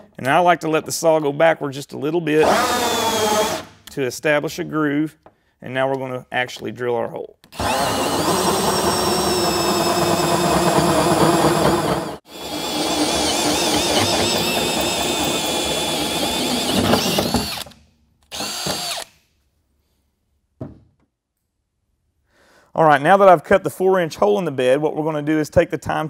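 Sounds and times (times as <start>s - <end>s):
hole saw grinding through steel: 7.6s - 17.6s.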